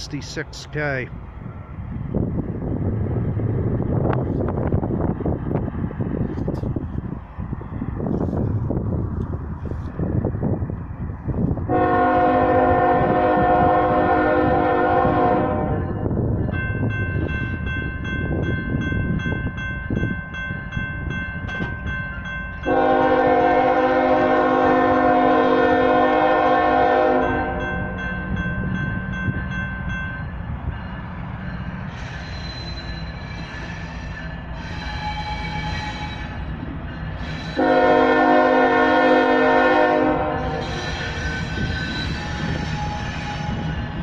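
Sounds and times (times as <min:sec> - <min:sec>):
train rumbling: 0:00.0 - 0:44.0
locomotive air horn blasts: 0:11.7 - 0:15.9, 0:22.7 - 0:27.9, 0:37.6 - 0:41.7
crossing signal bell dinging: 0:15.8 - 0:23.4, 0:27.0 - 0:33.2.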